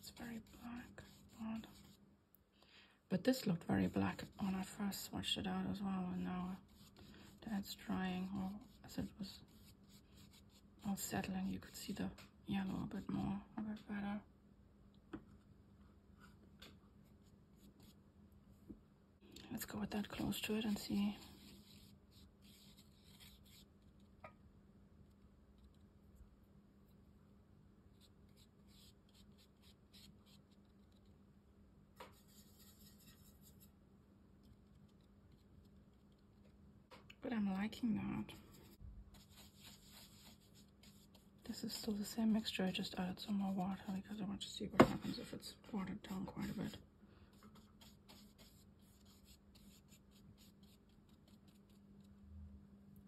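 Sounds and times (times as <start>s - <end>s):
paintbrush scratching: 0.0s - 2.0s, 6.1s - 12.3s, 17.0s - 18.0s, 20.0s - 24.2s, 27.9s - 31.1s, 32.0s - 33.7s, 38.4s - 44.2s, 44.8s - 51.9s.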